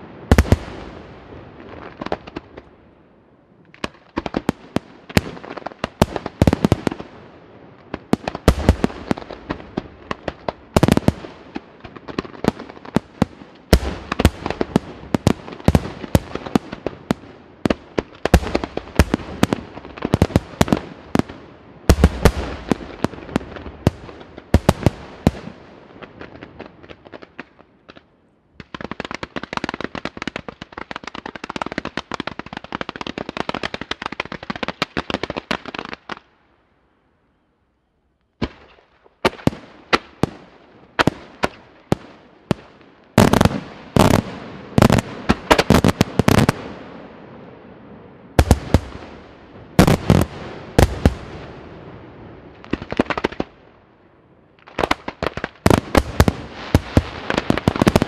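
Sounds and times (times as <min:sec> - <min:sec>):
fireworks bangs: 0:00.0 - 0:02.7, 0:03.7 - 0:28.0, 0:38.4 - 0:53.6, 0:54.6 - 0:58.0
fireworks crackling: 0:03.7 - 0:36.3, 0:38.4 - 0:53.7, 0:54.4 - 0:58.0.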